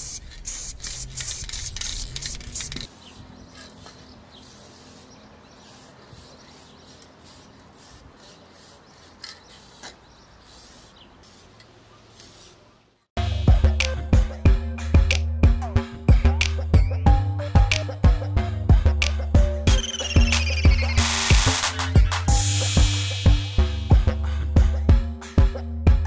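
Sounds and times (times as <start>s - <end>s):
spray paint can hissing: 0.0s - 12.6s, 19.8s - 23.7s.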